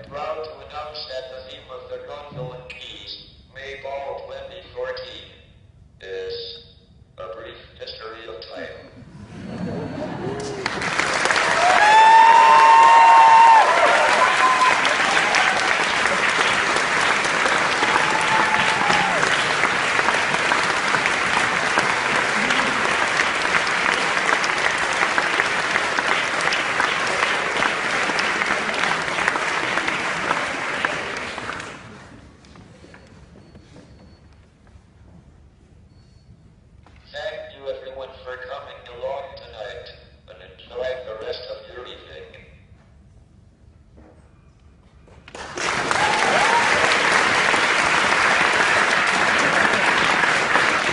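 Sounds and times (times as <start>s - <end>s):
audience applauding: 10.1s - 32.2s, 45.3s - 50.9s.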